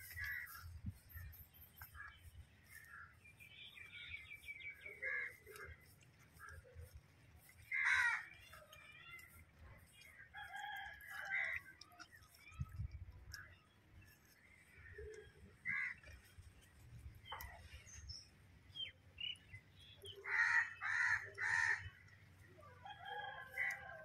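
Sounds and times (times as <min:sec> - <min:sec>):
rooster crowing: 0:22.8 - 0:24.0.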